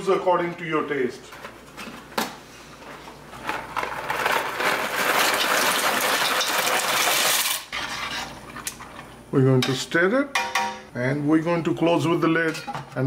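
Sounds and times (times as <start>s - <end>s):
dry pasta rattling into a pot: 3.7s - 7.7s.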